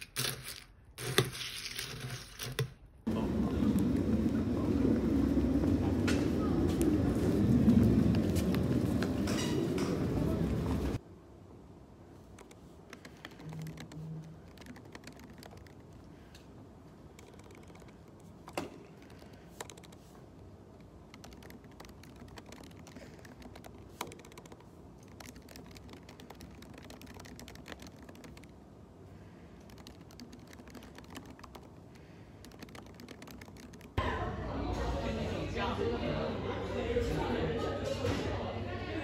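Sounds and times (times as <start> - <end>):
typing on laptop keyboard: 12.4 - 16.3, 17.1 - 20.1, 20.8 - 28.6, 29.3 - 34.0.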